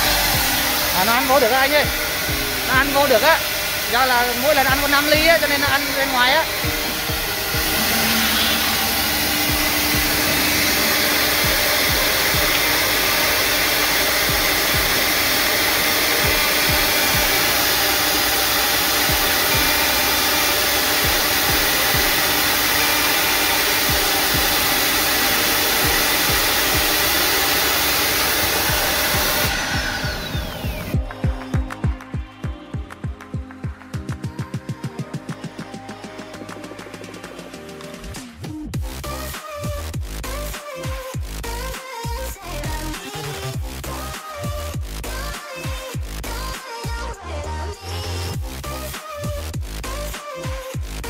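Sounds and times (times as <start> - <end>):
machine spindles whining: 0.0 - 38.5
low throbbing pulse: 0.0 - 40.4.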